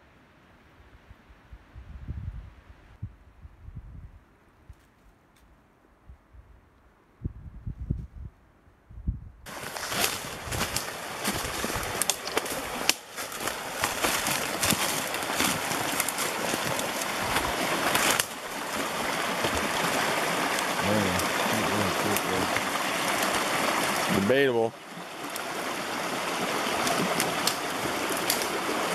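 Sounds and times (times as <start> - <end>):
stream water rushing: 9.5 - 28.9.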